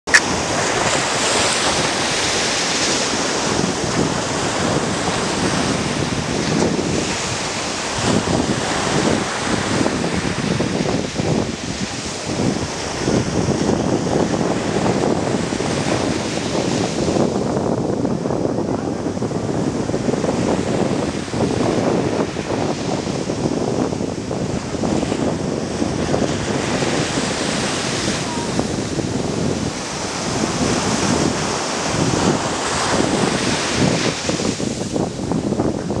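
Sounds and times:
sea waves breaking on beach: 0.1s - 36.0s.

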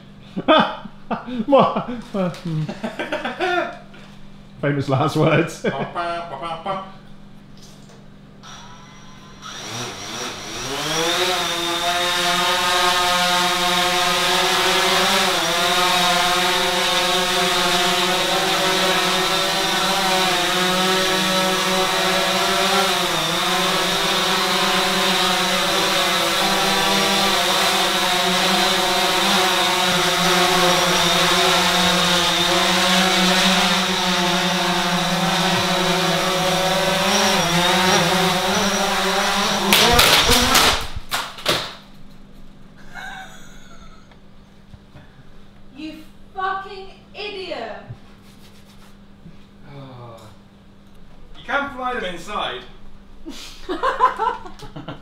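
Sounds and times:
drone propellers whining: 8.4s - 41.1s.

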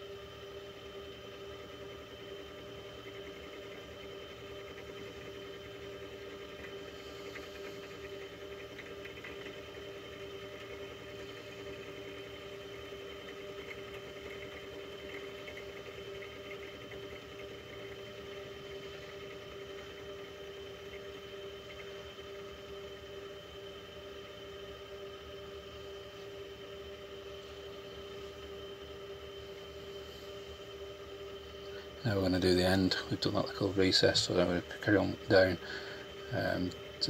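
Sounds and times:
mill motor whine: 0.0s - 37.0s.

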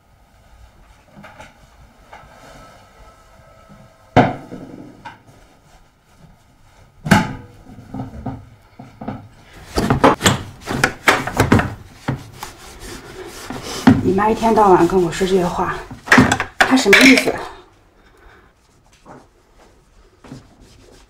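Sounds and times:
rice cooker clattering and rubbing: 7.2s - 17.4s.

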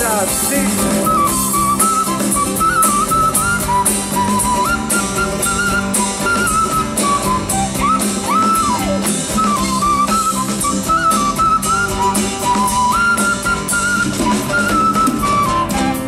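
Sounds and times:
guitar: 0.0s - 16.0s
steady drum beat: 0.0s - 16.0s
wooden flute melody: 0.6s - 16.0s.

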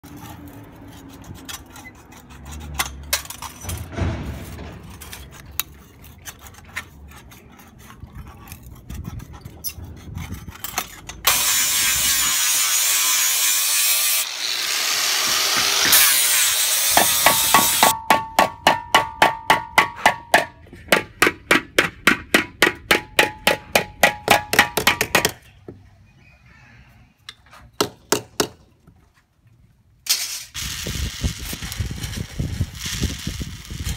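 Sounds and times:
angle grinder grinding metal: 11.2s - 18.0s.

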